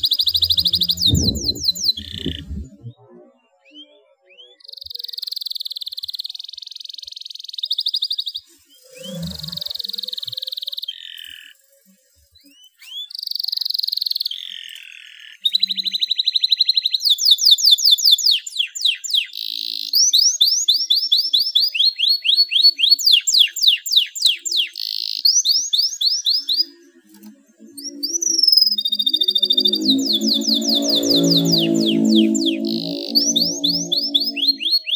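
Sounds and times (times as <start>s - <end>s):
canary singing trills: 20.4s - 34.9s.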